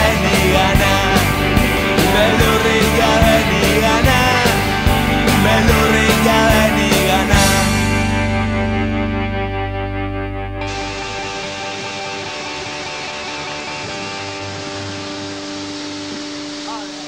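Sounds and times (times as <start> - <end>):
held chord ringing: 0.0 - 17.0
rock music with drum beat: 0.0 - 17.0.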